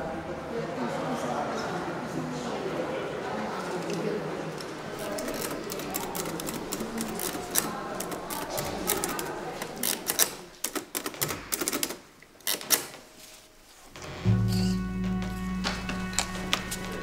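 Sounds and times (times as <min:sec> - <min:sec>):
music with low held notes: 0:14.0 - 0:17.0.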